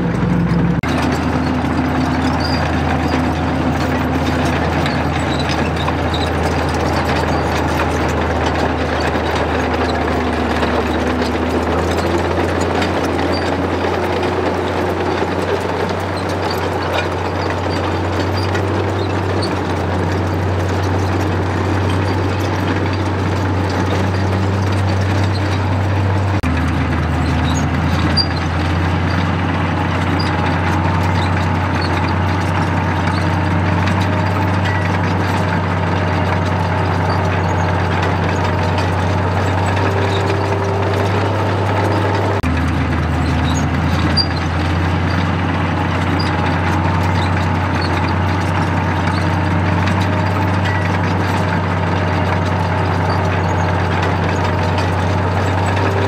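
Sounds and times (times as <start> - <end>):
bulldozer diesel engine: 0.0 - 56.0.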